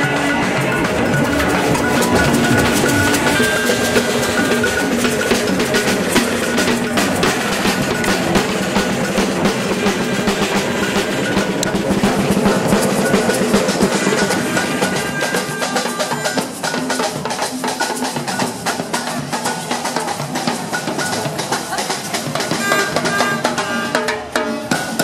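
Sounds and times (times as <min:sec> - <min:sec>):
bass drums: 0:00.0 - 0:15.2
samba drums playing: 0:00.0 - 0:25.0
snare drums: 0:00.0 - 0:25.0.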